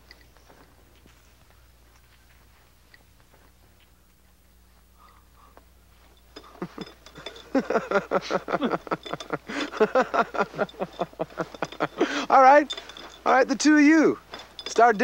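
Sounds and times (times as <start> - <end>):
men laughing loudly: 6.4 - 12.4.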